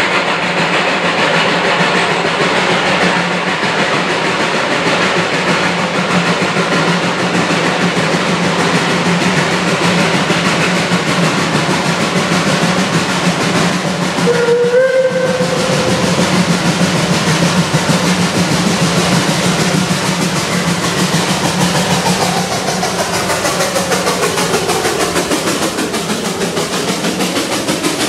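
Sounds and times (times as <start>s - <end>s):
steam locomotive running: 0.0s - 28.0s
steam whistle: 14.2s - 16.2s.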